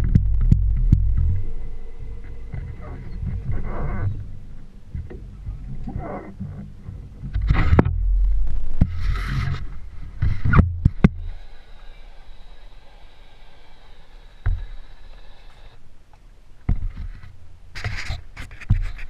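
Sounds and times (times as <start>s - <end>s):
wind buffeting microphone: 0.0s - 11.4s
water noise: 0.0s - 19.0s.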